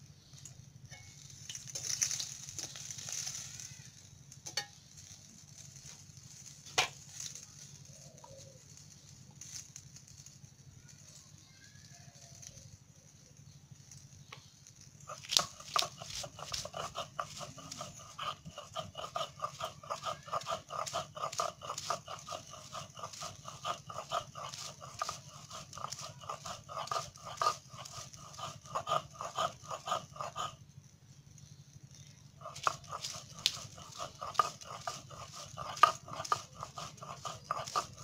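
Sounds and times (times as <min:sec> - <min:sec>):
stone roller grinding on slab: 0:00.4 - 0:10.7, 0:12.2 - 0:38.0.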